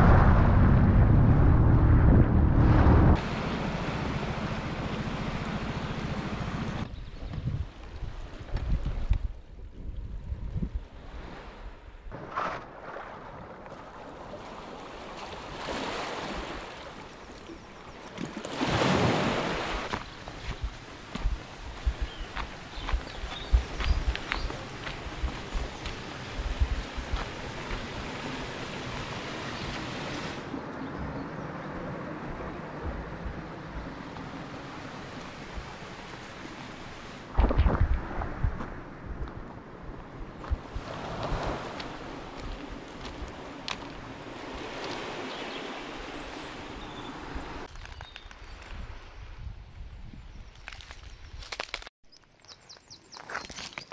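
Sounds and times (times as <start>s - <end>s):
loud low thumps: 0.0s - 3.2s
wind buffeting microphone: 0.0s - 3.2s, 6.9s - 12.1s, 20.2s - 28.3s
water rushing: 0.0s - 6.9s, 12.2s - 39.8s, 40.5s - 47.7s
wind: 0.0s - 53.9s
sea water splashing around boat: 11.0s - 21.0s, 40.6s - 47.7s.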